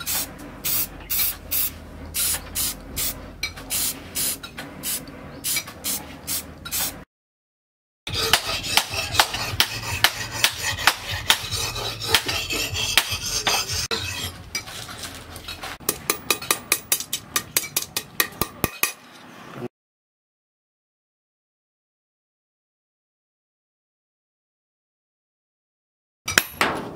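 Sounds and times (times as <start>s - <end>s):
axe blade striking steel rod: 8.1s - 14.1s.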